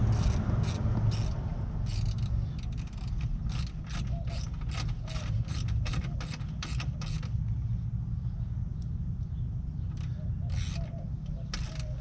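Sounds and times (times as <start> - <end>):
hand ratchet clicking: 0.0 - 7.4, 9.9 - 10.9, 11.5 - 12.0.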